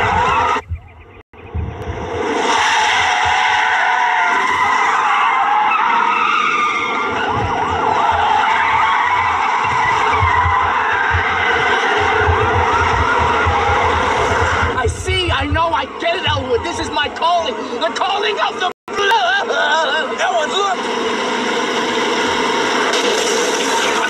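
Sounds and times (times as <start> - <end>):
car engines: 0.0 - 24.0
tyres squealing: 2.5 - 20.9.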